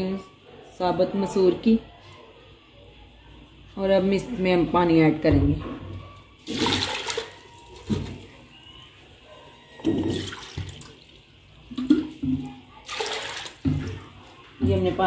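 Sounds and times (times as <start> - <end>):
water splashing onto lentils: 6.4 - 7.4, 12.8 - 13.8.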